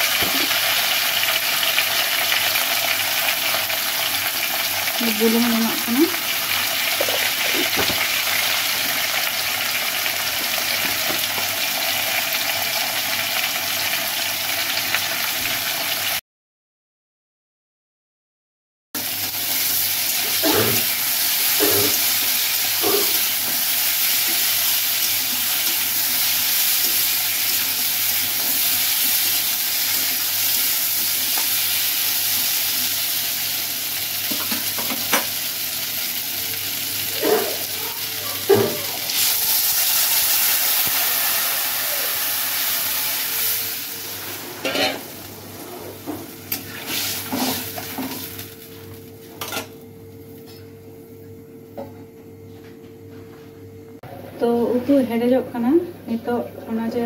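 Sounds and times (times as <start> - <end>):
vegetables sizzling in hot oil: 0.0 - 16.2, 19.0 - 45.6, 46.2 - 48.6
metal spatula scraping a pan: 44.2 - 45.8.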